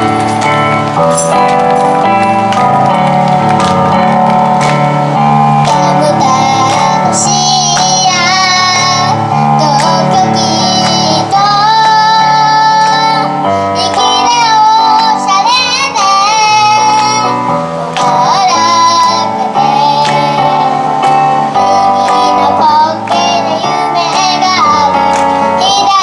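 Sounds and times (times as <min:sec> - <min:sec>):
instrumental backing music: 0:00.0 - 0:26.0
girl singing: 0:05.6 - 0:26.0.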